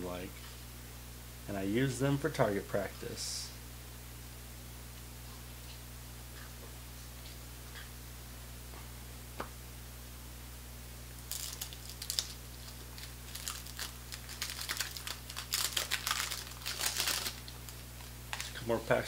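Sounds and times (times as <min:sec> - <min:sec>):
paper wrapper crinkling and tearing: 0:11.2 - 0:18.6.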